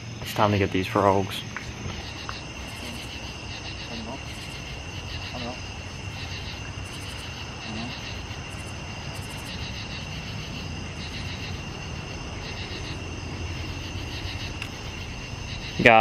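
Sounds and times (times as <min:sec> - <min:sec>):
insects singing: 0:00.0 - 0:16.0
steady low rumble: 0:00.0 - 0:16.0.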